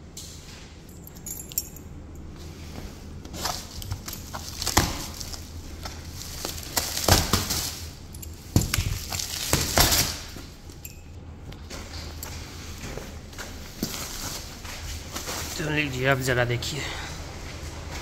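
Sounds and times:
plastic wrap crinkling and tearing: 3.5s - 7.9s, 8.7s - 10.3s.

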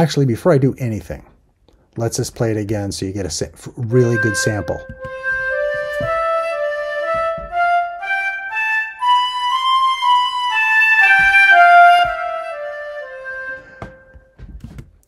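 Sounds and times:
synthesized flute melody: 3.8s - 14.4s.

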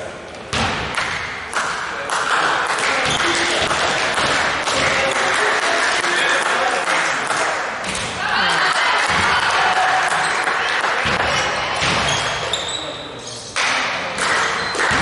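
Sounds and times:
crowd clapping: 1.0s - 7.6s, 8.5s - 11.0s, 13.6s - 15.0s
people shouting: 8.2s - 10.4s.

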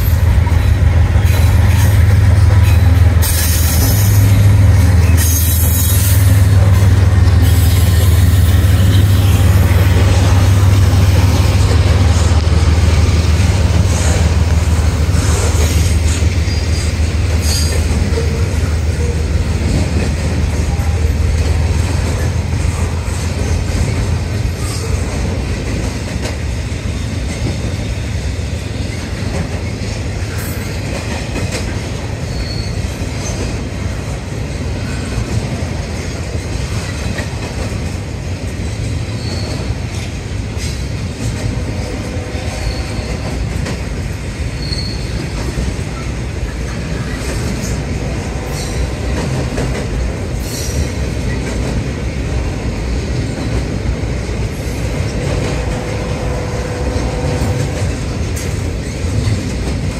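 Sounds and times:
freight train wheels rumbling: 0.0s - 59.9s
wheels clacking over rail joints: 0.0s - 59.9s
high wheel squeals: 15.5s - 19.2s, 32.2s - 33.2s, 39.1s - 39.8s, 42.2s - 43.3s, 44.6s - 45.6s.

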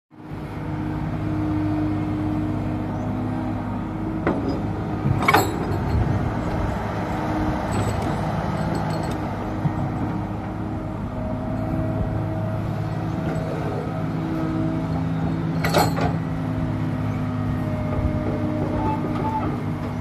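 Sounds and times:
excavator diesel engine running: 0.2s - 20.0s
sharp metal clanks: 5.2s - 6.2s, 15.6s - 16.2s.

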